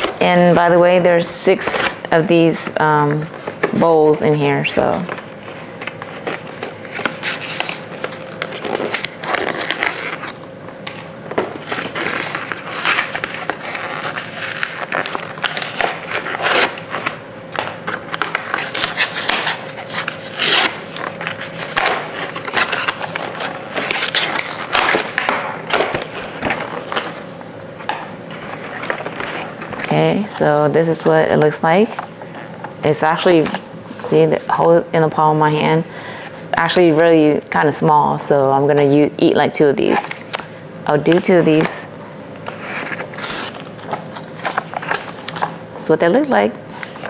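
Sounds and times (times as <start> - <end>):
cardboard carton tearing: 6.4 - 10.4, 18.1 - 27.2.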